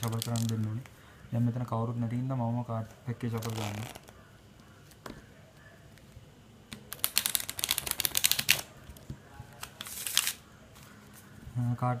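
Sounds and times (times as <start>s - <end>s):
playing cards riffle shuffling: 3.4s - 4.1s, 6.8s - 8.7s, 9.6s - 11.3s.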